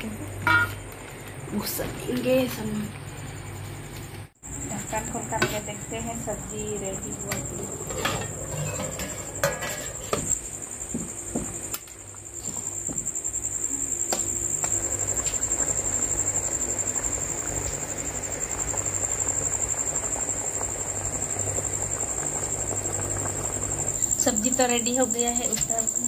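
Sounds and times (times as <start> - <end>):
crickets chirping: 0.0 - 26.0
curry bubbling at a boil: 11.1 - 26.0.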